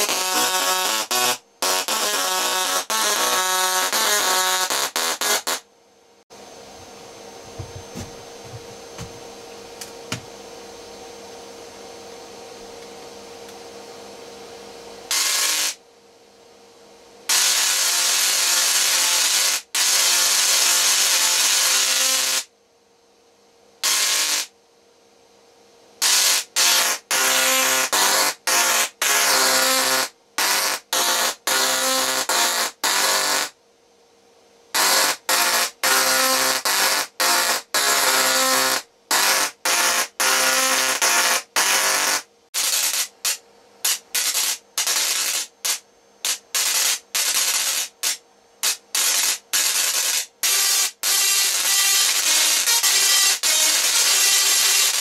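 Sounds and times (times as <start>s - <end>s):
tesla coil sparks buzzing: 0.0s - 5.6s, 15.1s - 15.8s, 17.3s - 22.5s, 23.8s - 24.5s, 26.0s - 33.6s, 34.7s - 55.0s.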